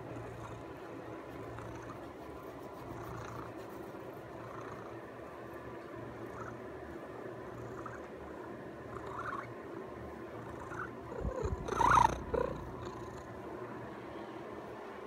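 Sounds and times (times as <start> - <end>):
cat purring: 0.0 - 5.1, 6.0 - 6.7, 7.4 - 9.5, 10.3 - 13.4.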